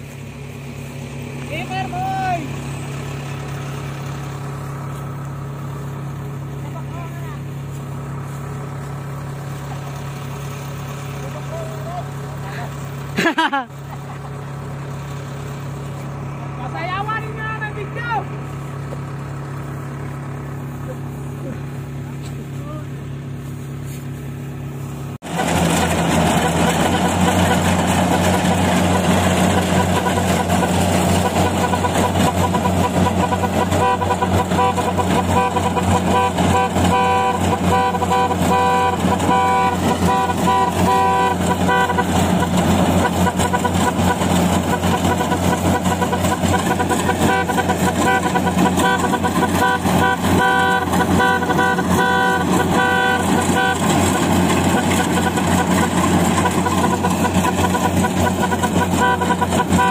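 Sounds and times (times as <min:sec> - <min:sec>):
combine harvester engine humming: 0:00.0 - 0:59.9.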